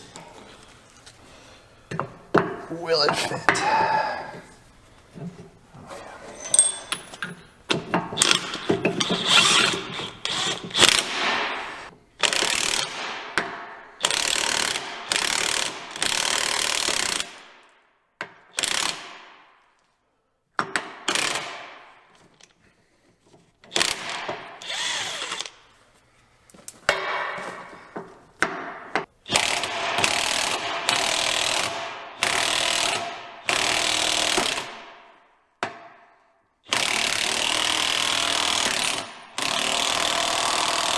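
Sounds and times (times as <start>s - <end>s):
impact wrench bursts: 8.2s - 13.2s, 14.0s - 17.4s, 20.9s - 21.8s, 23.7s - 25.6s, 29.3s - 35.0s, 36.7s - 40.9s.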